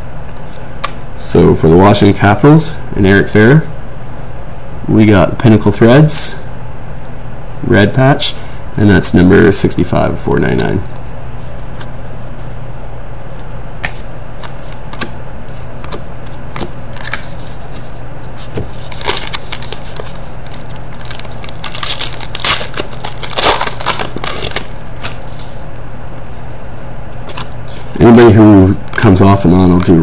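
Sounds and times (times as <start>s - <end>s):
steady low hum: 0.0s - 30.0s
cards being shuffled: 13.4s - 25.6s, 27.1s - 28.0s
card wrappers crinkling and tearing: 18.4s - 25.6s.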